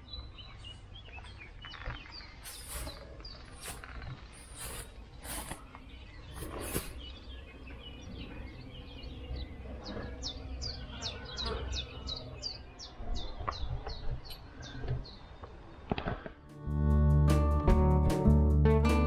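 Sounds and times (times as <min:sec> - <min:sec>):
bird chirps: 0:00.0 - 0:16.3
songbird singing: 0:00.0 - 0:16.7.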